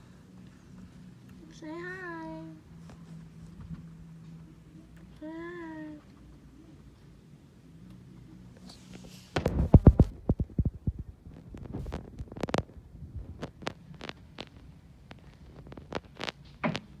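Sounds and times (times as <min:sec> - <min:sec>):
rabbit moving on bedding: 0:08.5 - 0:17.0.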